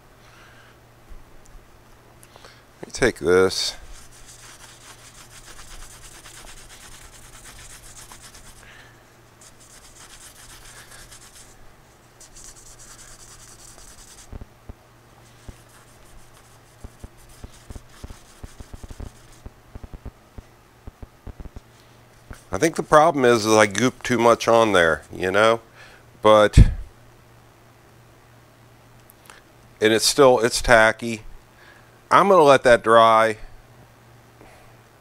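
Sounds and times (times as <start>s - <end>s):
scratchy rubbing on leather: 3.5s - 8.7s, 9.4s - 14.4s, 15.2s - 19.5s, 22.2s - 22.8s.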